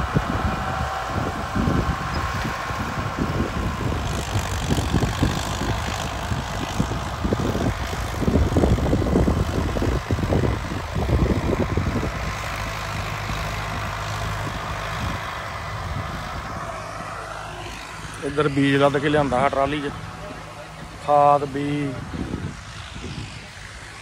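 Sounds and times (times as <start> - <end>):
tractor diesel engine running: 0.0 - 22.9.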